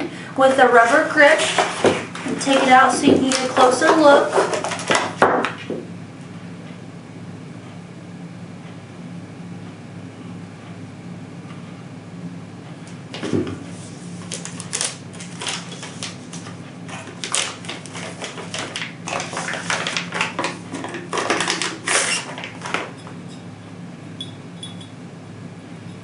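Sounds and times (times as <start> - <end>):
plastic packaging crinkling: 1.4 - 5.2, 14.2 - 22.9.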